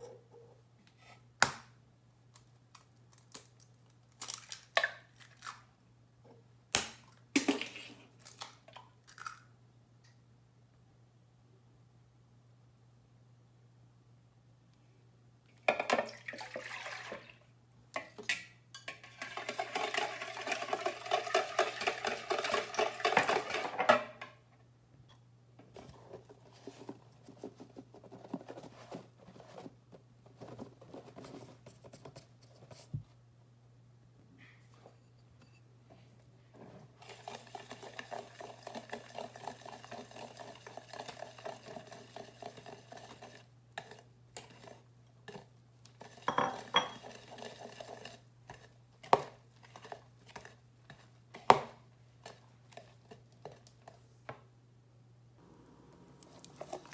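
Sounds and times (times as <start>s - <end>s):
whisking in a bowl: 18.9s - 23.6s, 37.0s - 51.2s.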